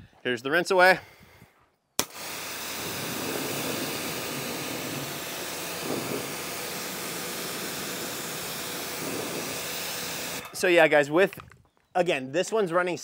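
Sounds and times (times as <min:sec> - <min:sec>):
pressure washer spraying water: 0:02.0 - 0:10.4.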